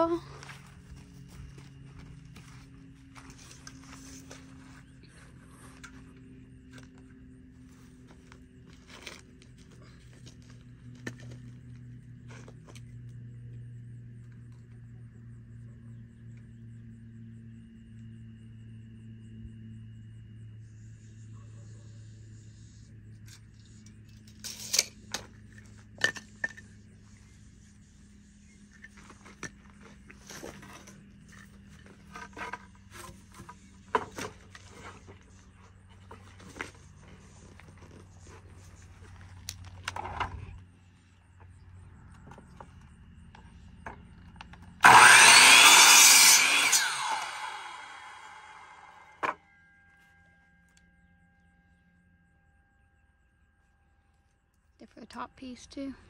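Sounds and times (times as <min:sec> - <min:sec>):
small clicks and scrapes: 0:03.1 - 0:13.6, 0:22.8 - 0:40.7
faint low hum: 0:47.2 - 0:56.0.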